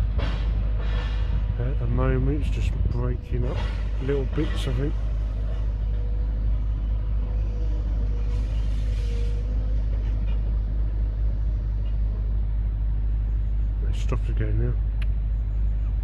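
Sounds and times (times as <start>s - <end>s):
excavator engine rumble: 0.0s - 16.0s
hydraulic whine: 0.0s - 16.0s
burst of hiss: 8.2s - 9.4s.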